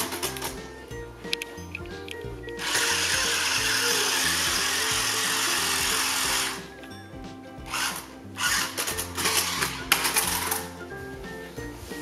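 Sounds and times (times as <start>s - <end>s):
background music: 0.0s - 12.0s
small electric motors whirring: 2.6s - 6.6s.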